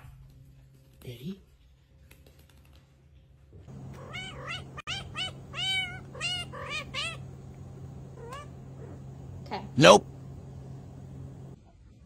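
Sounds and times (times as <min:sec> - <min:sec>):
cat meowing: 0:03.7 - 0:11.6
low steady hum: 0:03.7 - 0:11.6.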